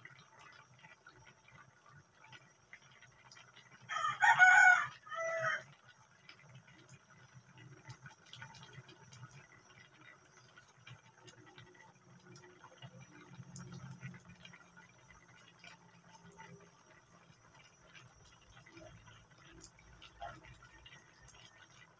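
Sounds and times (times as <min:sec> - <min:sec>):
faint ticks: 0:05.1 - 0:21.9.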